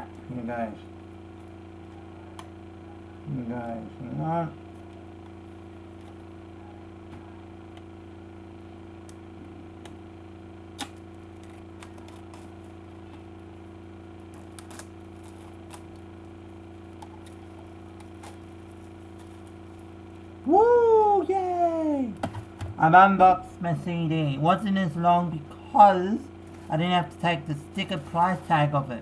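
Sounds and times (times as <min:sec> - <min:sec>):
steady low hum: 0:00.0 - 0:29.0
plastic wrap crinkling: 0:10.8 - 0:13.4, 0:14.0 - 0:20.4.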